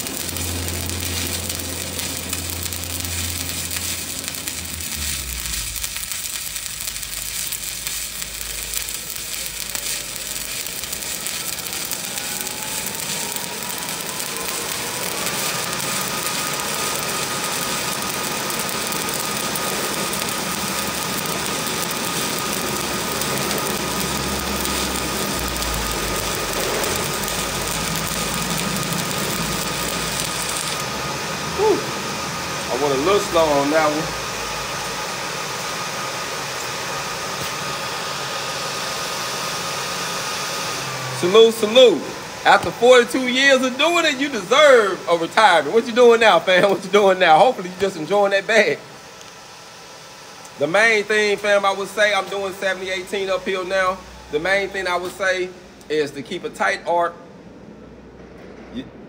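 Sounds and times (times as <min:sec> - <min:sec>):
faint whine: 0:00.0 - 0:39.3
welding arc crackling hiss: 0:00.0 - 0:57.1.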